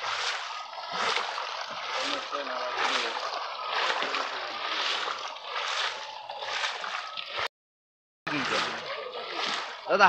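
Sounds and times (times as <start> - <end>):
water splashing and sloshing: 0.0 - 7.5, 8.3 - 10.0
fish thrashing in net: 8.4 - 9.9.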